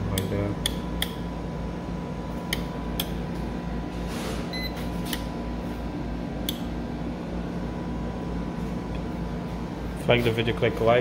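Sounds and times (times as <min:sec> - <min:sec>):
steady low hum: 0:00.0 - 0:11.0
wall switch clicks: 0:00.1 - 0:01.2, 0:02.5 - 0:03.2, 0:06.4 - 0:06.7.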